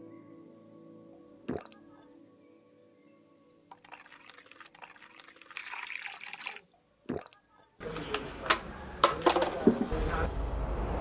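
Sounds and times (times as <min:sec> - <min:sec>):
water pouring into a glass: 0:03.7 - 0:07.4.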